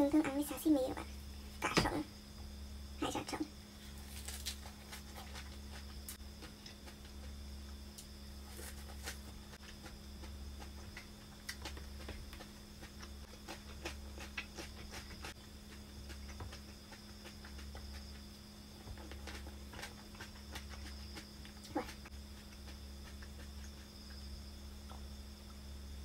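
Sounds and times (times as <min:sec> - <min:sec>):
crisp crunching of leaves: 0:03.8 - 0:05.1.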